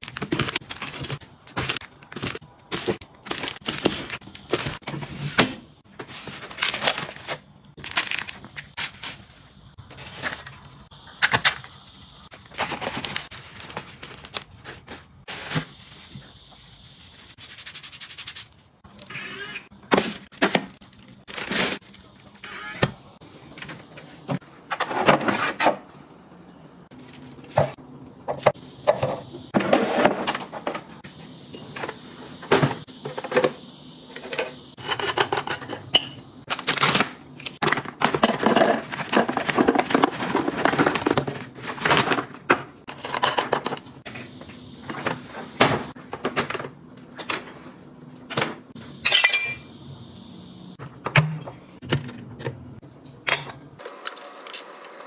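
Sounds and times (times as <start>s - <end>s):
plastic packet rustling: 0.0s - 4.8s, 6.1s - 9.3s, 12.4s - 15.1s, 37.6s - 42.3s
glass jars clinking: 49.0s - 49.6s.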